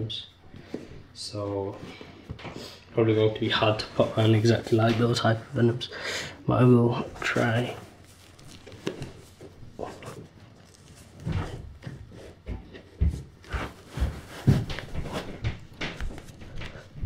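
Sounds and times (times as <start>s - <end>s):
fabric rubbing and rustling: 6.9s - 12.4s, 13.2s - 16.4s.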